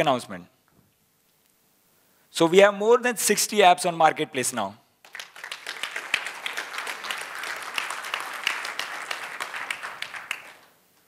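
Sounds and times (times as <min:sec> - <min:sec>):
audience applauding: 0:05.0 - 0:10.8.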